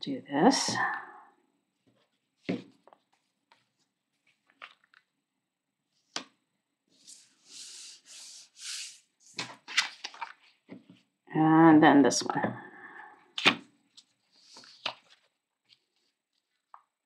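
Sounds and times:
paper handling: 1.8s - 5.1s, 9.3s - 11.0s, 13.4s - 16.9s.

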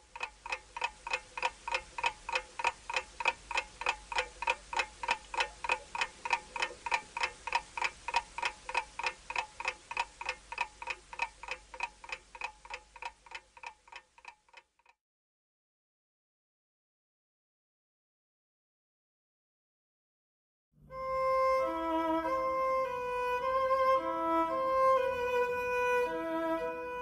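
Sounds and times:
clock-like ticking with ringing note: 0.0s - 15.0s.

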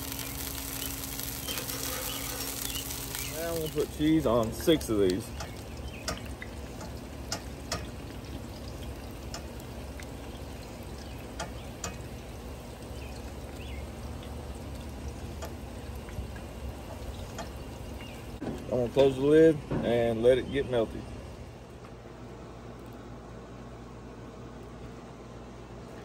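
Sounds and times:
meat sizzling on griddle: 0.0s - 15.8s.

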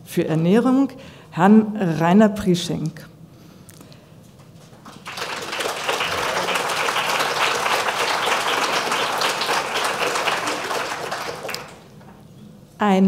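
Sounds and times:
audience applauding: 4.6s - 12.2s.

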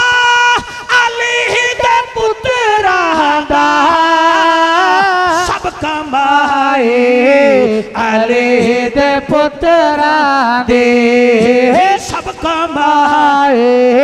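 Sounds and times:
man singing unaccompanied: 0.0s - 14.0s.

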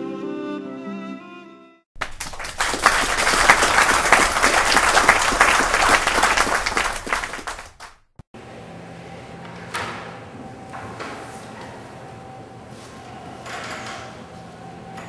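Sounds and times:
audience applauding: 2.0s - 8.1s.

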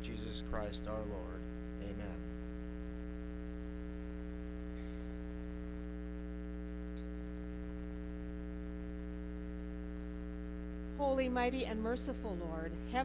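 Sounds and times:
electrical mains hum: 0.0s - 13.0s.

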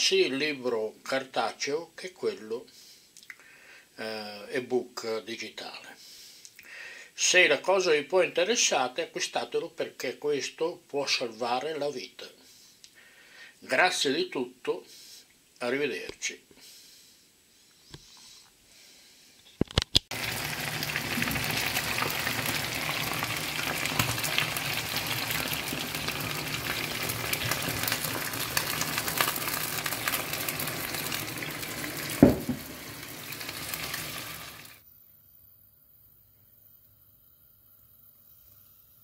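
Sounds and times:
chicken wings sizzling in a pan: 20.1s - 34.8s
wine pouring: 20.1s - 34.8s
sharp knock: 32.2s - 32.7s.

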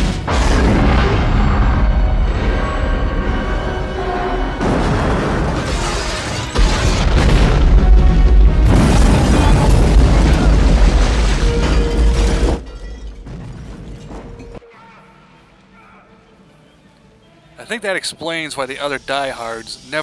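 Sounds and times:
loud explosion blast: 0.0s - 3.4s, 4.5s - 12.6s
deep explosion rumble: 0.0s - 3.6s, 6.6s - 12.5s
film score music: 0.0s - 19.9s.

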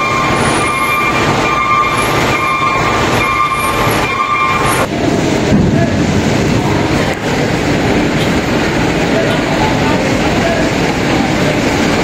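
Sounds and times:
electronic reversing beeps: 0.0s - 4.9s
rumble of vehicle and ship engines: 0.0s - 12.0s.

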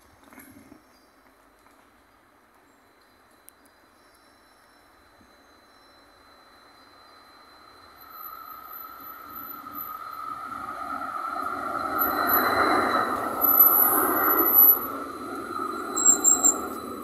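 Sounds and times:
tram rolling past: 1.5s - 17.0s
tram motor whine: 2.9s - 17.0s
wheel squeals: 3.8s - 17.0s.

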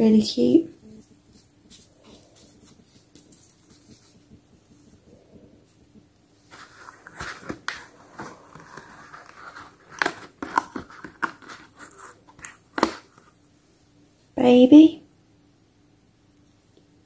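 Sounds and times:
cardboard and plastic rustling: 6.4s - 13.4s.

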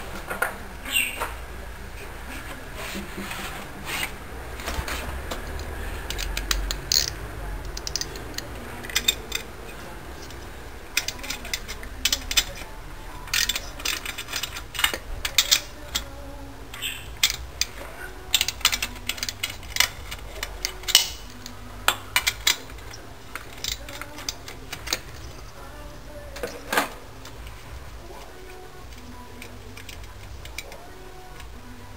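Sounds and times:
ratchet wrench clicking: 5.4s - 9.5s, 10.2s - 12.7s, 13.3s - 16.1s, 16.8s - 21.6s.

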